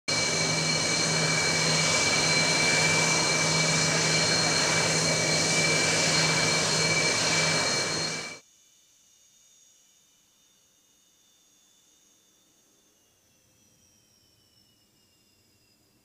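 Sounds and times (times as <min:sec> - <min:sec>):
jet engines running: 0:00.0 - 0:08.4.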